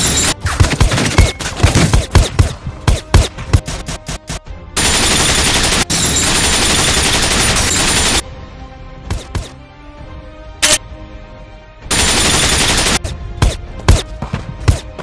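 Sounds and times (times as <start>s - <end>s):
film score music: 0.0s - 15.0s
gunfire: 4.8s - 8.2s, 11.9s - 14.9s.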